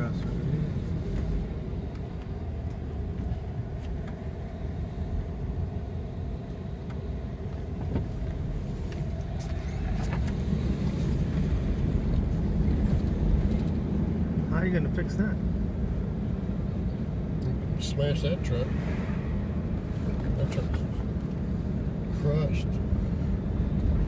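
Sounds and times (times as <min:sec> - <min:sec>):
car engine and tyre rumble: 0:00.0 - 0:24.0.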